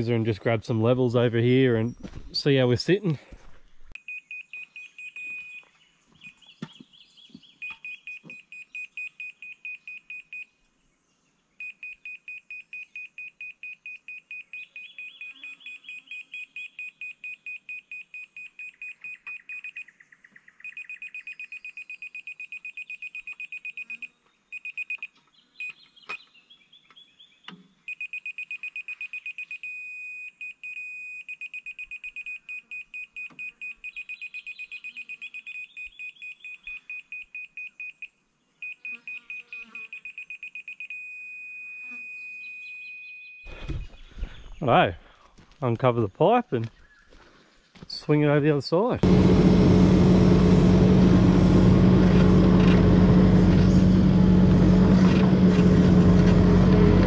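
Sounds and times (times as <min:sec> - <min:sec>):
steady electronic tone: 0:49.0 - 0:57.0.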